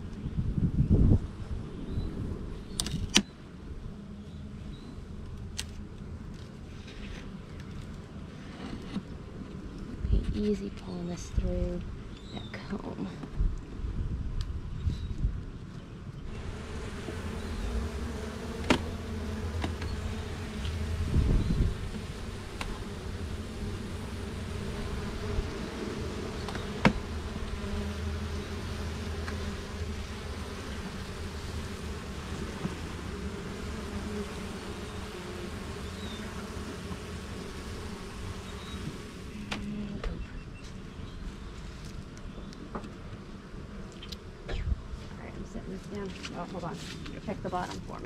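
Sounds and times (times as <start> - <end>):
honeybees buzzing: 16.2 - 48.0
low rumble: 16.3 - 26.4.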